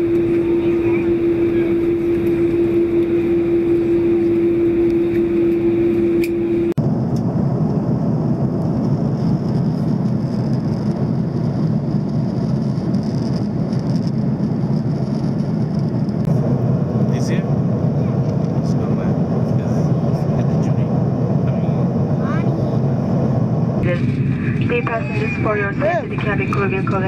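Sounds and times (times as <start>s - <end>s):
steady hum tone: 0.0s - 9.4s, 20.4s - 27.0s
airliner cabin engine rush: 0.0s - 27.0s.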